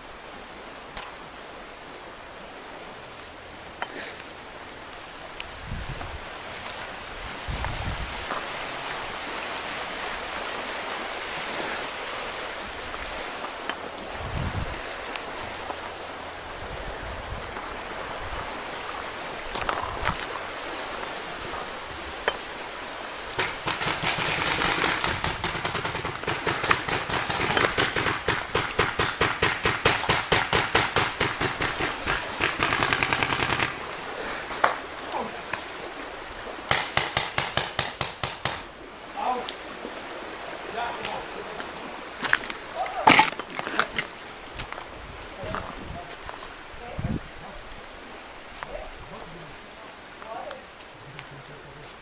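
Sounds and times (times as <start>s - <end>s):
rustling hiss: 0.0s - 52.0s
paintball marker rapid firing: 23.4s - 33.8s.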